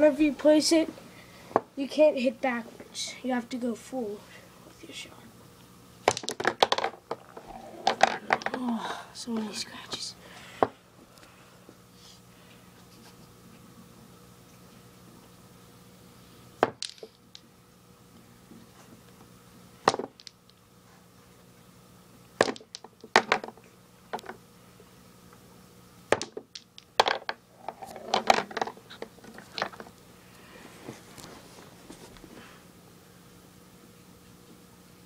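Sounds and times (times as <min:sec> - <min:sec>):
pool balls clicking: 0:06.1 - 0:09.4, 0:16.6 - 0:17.4, 0:22.4 - 0:24.4, 0:26.1 - 0:30.0.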